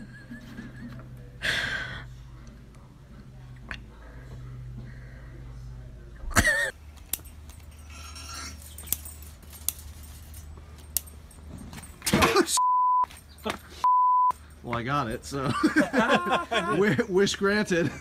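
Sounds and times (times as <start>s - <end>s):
beep tone: 12.6s - 13.1s, 13.8s - 14.3s.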